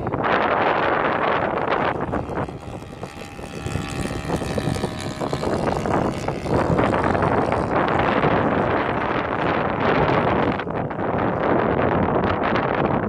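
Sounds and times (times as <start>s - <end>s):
model airplane engine droning: 0.0s - 13.0s
wind buffeting microphone: 0.0s - 13.0s.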